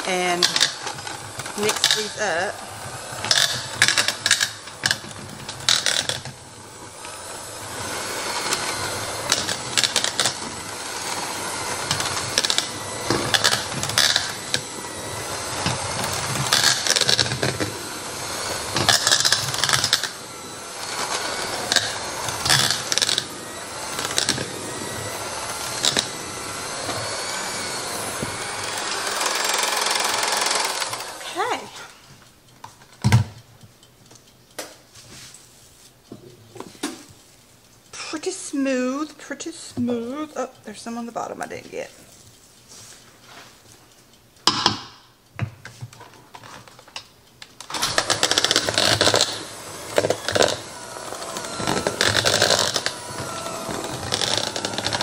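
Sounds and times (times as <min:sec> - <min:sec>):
electric hand mixer running: 0:00.0 - 0:31.8, 0:47.5 - 0:55.0.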